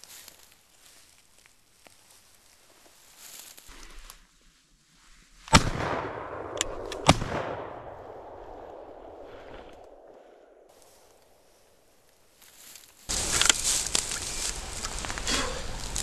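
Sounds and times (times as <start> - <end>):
shotgun shots echoing: 5.5 - 10.7
sharp clicks: 6.4 - 7.4.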